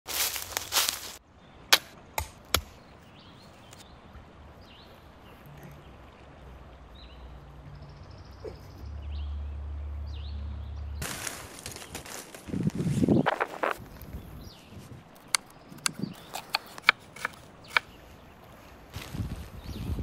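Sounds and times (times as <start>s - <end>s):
hatchet chopping log: 1.7s - 2.8s, 15.3s - 17.9s
low rumble: 5.5s - 11.0s.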